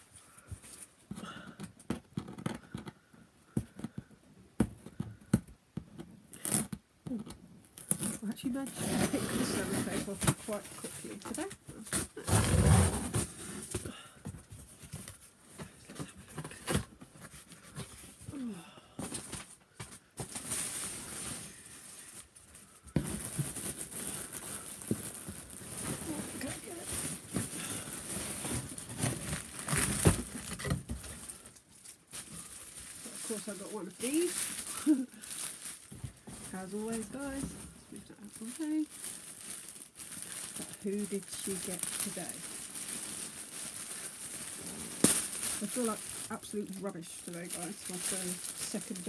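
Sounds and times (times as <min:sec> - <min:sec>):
cellophane crinkling: 0:06.3 - 0:13.4, 0:19.1 - 0:49.0.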